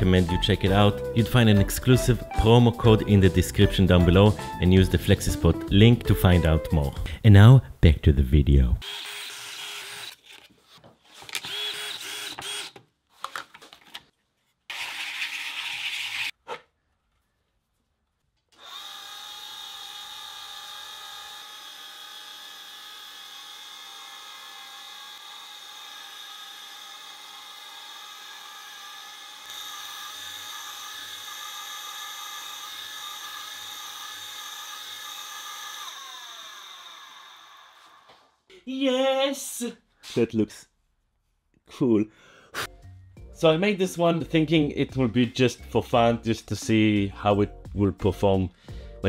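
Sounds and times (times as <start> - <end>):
engraving machine whirring: 8.8 - 10.3, 11.4 - 12.8, 18.6 - 38.1.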